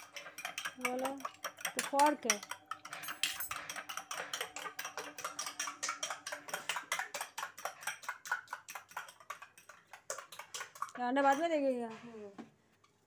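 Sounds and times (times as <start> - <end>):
fork clinking against bowl: 0.0 - 8.0.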